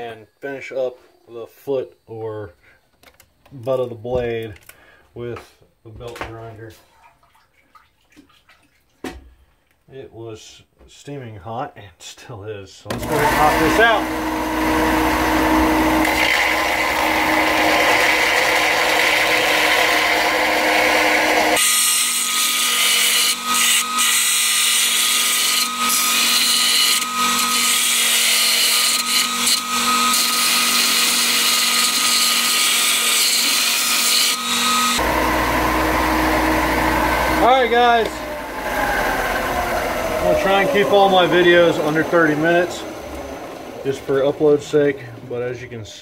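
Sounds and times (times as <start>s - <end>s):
belt grinder grinding steel blade: 12.9s - 44.8s.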